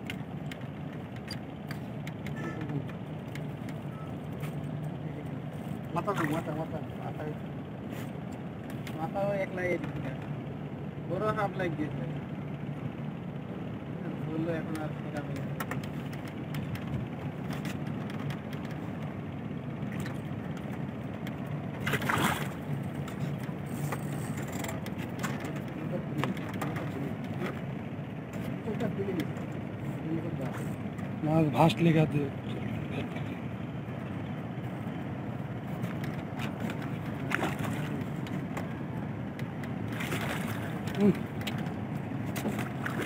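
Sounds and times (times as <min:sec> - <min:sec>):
low motor hum: 0:00.0 - 0:43.0
fish splashing in water: 0:21.8 - 0:22.7, 0:36.8 - 0:38.2, 0:39.9 - 0:41.4, 0:42.3 - 0:43.0.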